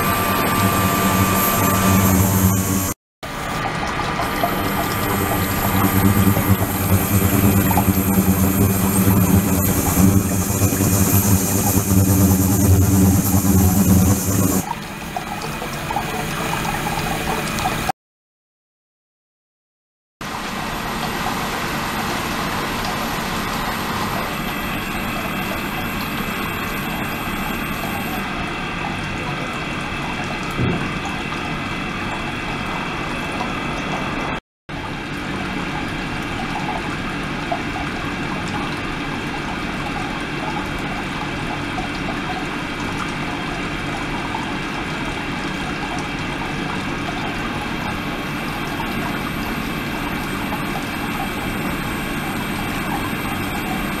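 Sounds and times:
steady high-pitched tones: 0.0s - 3.0s, 4.0s - 14.7s, 21.4s - 28.4s.

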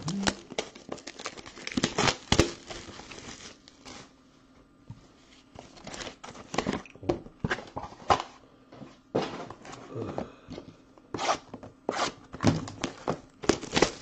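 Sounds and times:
plastic wrap ripping and crinkling: 0.0s - 4.1s, 12.7s - 14.0s.

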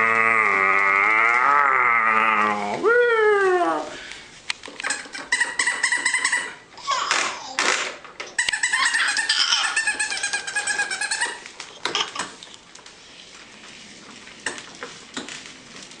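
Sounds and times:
baby squealing and laughing: 8.4s - 12.3s.

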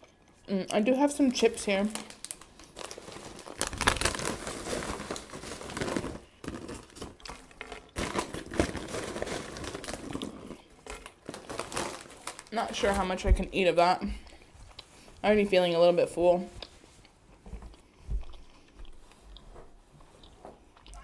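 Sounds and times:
chip bag crinkling: 1.2s - 13.4s.

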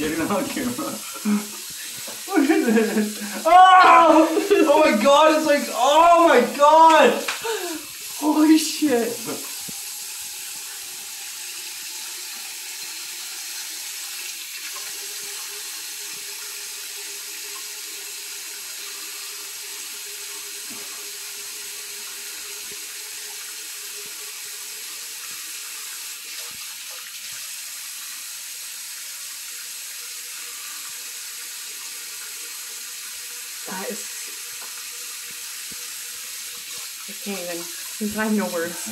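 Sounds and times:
tap running into sink: 1.6s - 3.0s, 9.1s - 10.8s, 34.3s - 37.0s.

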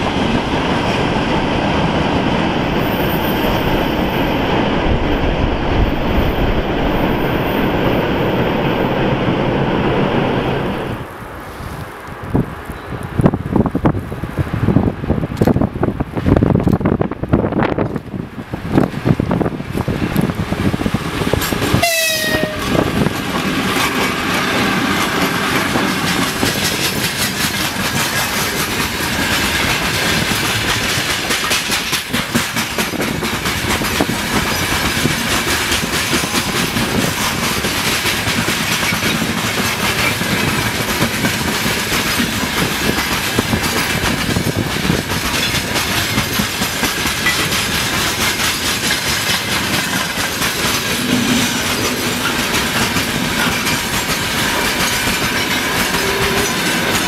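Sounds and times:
freight train rumbling past: 0.0s - 57.0s
wheels clattering over rail joints: 18.7s - 57.0s
locomotive horn blast: 21.8s - 22.8s.

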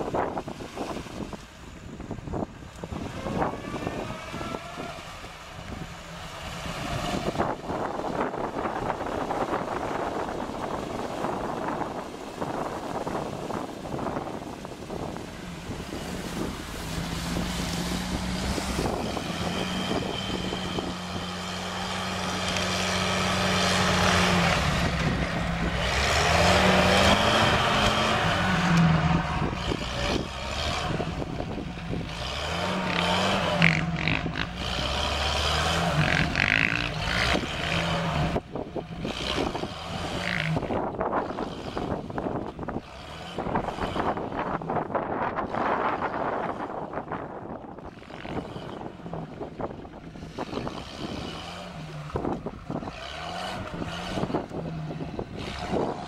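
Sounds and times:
off-road engines revving: 0.0s - 56.0s
water sloshing around wheels: 0.0s - 56.0s.

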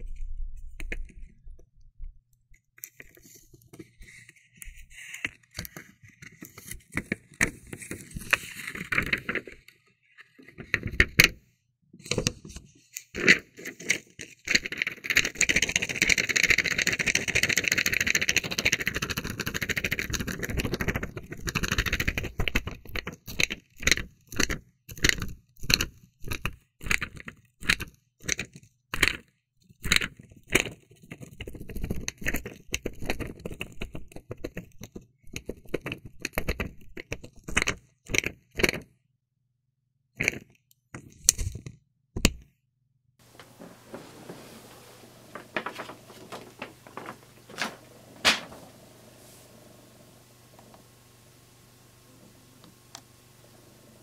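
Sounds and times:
crackling and scraping handling: 43.2s - 51.0s.

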